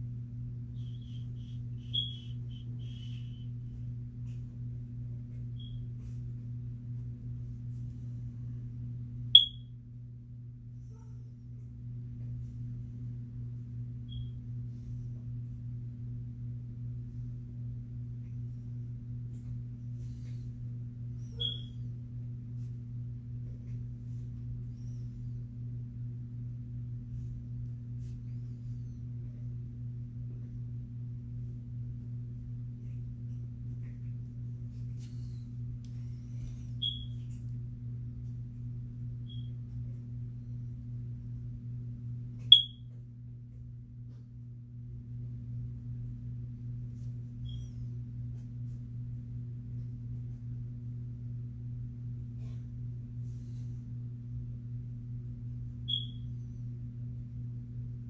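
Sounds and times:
high-pitched chirps: 0.8s - 3.5s, 9.4s - 9.6s, 21.3s - 21.8s, 36.8s - 37.2s, 42.5s - 42.8s, 55.9s - 56.3s.

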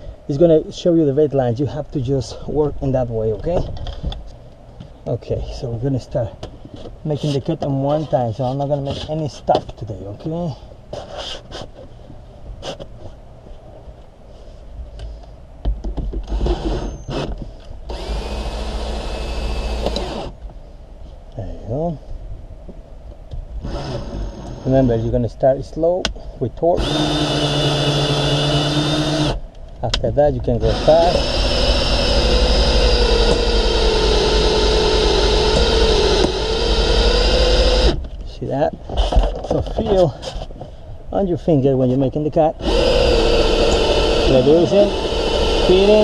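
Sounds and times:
cordless drill whining: 16.3s - 17.3s, 17.9s - 20.3s, 23.6s - 24.9s, 26.8s - 29.4s, 30.6s - 38.0s, 42.6s - 46.0s.

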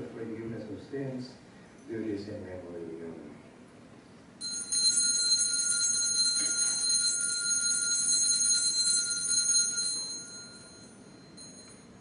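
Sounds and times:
altar bells ringing: 4.4s - 12.0s.

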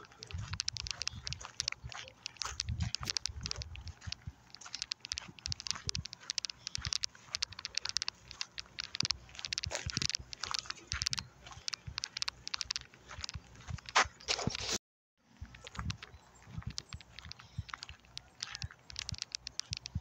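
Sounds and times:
footsteps crunching through dry grass: 0.0s - 14.8s, 15.4s - 20.0s.

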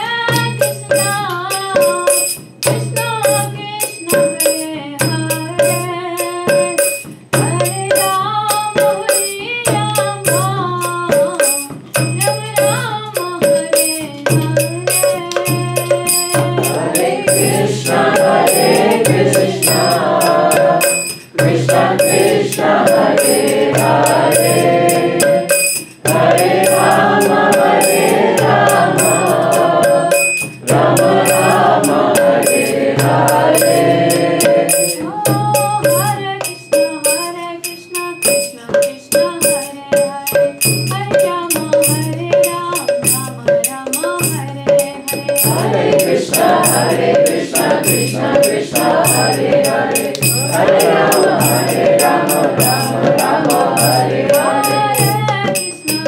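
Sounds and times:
group singing devotional chant: 0.0s - 8.0s, 13.4s - 37.2s, 44.2s - 56.0s
barrel drum beating: 0.0s - 36.6s, 39.2s - 56.0s
hand cymbals clinking: 0.0s - 56.0s.

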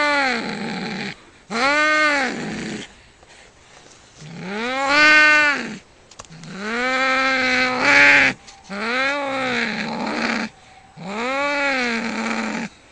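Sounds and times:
cats yowling: 4.3s - 12.8s.

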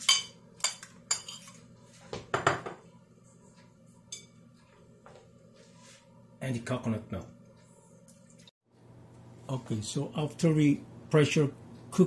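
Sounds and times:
fork clinking and scraping on plate: 0.0s - 1.6s.

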